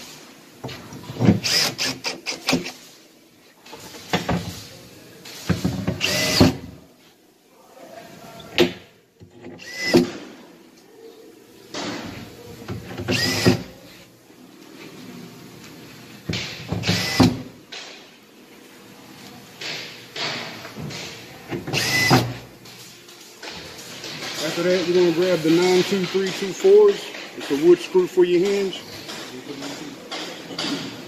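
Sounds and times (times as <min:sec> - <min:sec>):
power drill driving screws: 0:01.3 - 0:02.8, 0:06.0 - 0:06.6, 0:09.6 - 0:10.1, 0:13.0 - 0:13.7, 0:16.8 - 0:17.4, 0:21.7 - 0:22.4.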